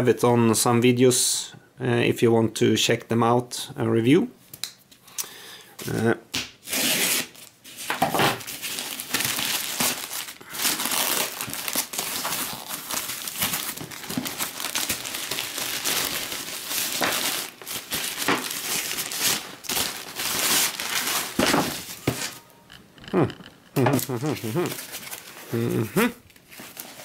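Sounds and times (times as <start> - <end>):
plastic bag and foam crinkling: 7.4 - 22.4, 23.8 - 27.0.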